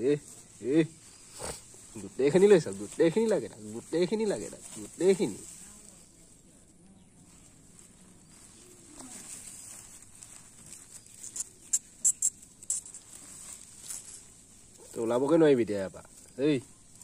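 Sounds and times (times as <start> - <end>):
plastic sacking crinkling and rustling: 0.0 - 6.4, 7.3 - 11.7.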